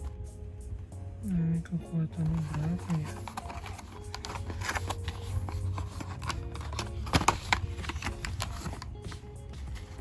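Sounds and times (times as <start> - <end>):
hands handling cardboard box: 2.3 - 10.0.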